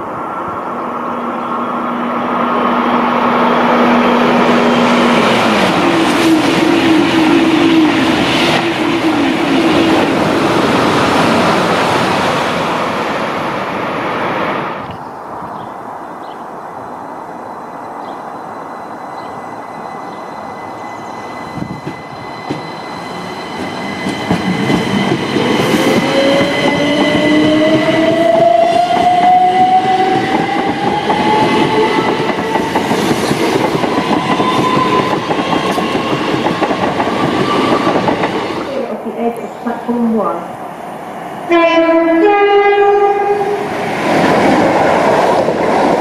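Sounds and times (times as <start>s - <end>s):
steady high tone: 17.5s - 32.6s.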